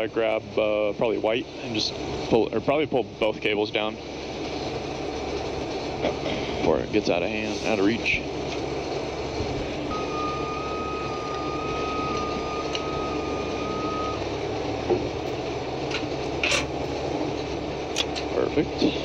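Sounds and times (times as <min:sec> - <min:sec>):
diesel truck engine running: 0:00.0 - 0:19.0
high electronic warning tone: 0:09.9 - 0:14.5.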